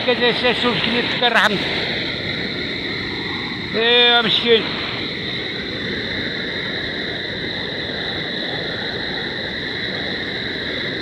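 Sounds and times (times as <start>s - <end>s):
floodwater rushing: 0.0s - 7.1s.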